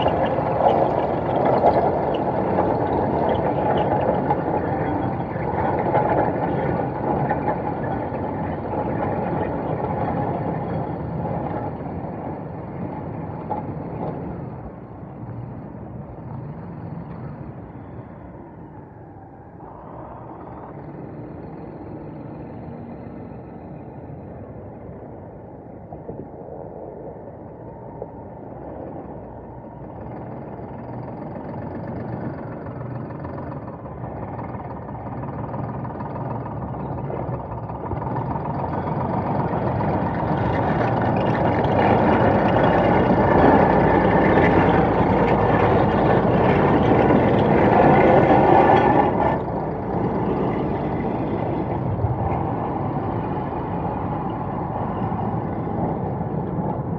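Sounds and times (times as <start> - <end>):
diesel truck engine passing: 28.5 - 56.9.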